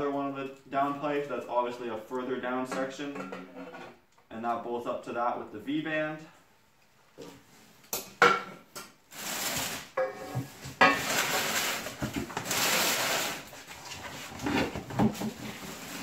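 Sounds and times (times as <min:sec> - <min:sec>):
metal pipes clanking on concrete: 0:02.6 - 0:04.0, 0:10.0 - 0:11.2
plastic bags rustling: 0:09.1 - 0:16.0.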